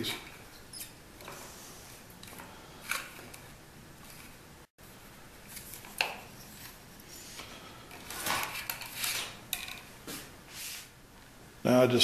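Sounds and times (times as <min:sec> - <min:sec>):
plastic hose rustling and clattering: 0:07.9 - 0:10.3.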